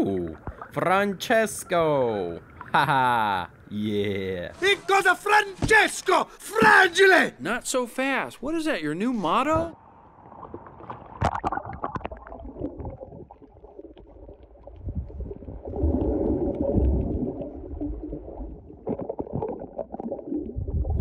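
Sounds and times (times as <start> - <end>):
underwater gurgling and rumbling: 9.8 - 21.0.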